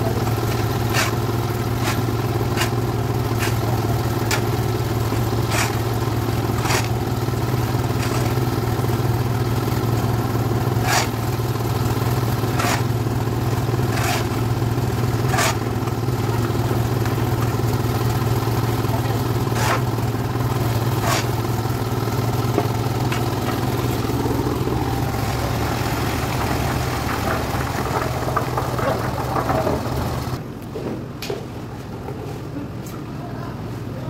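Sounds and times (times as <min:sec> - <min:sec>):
concrete mixer running: 0:00.0 - 0:30.4
shovel scraping wet concrete: 0:00.2 - 0:08.6, 0:10.7 - 0:11.3, 0:12.3 - 0:13.0, 0:13.6 - 0:16.0, 0:19.2 - 0:20.0, 0:20.7 - 0:21.5.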